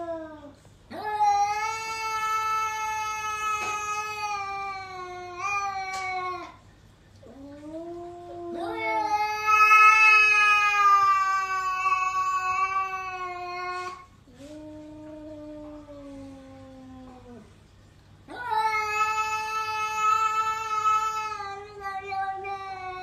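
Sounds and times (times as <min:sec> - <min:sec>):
cat yowling: 0:07.3 - 0:14.0, 0:18.3 - 0:23.0.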